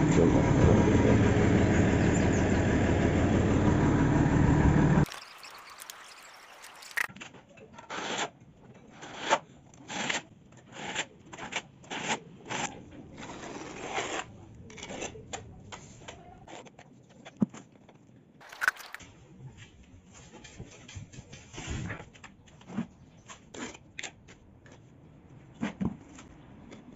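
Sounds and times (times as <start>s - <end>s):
trowel scraping mortar: 5.0s - 7.1s, 9.0s - 15.2s, 18.4s - 19.0s.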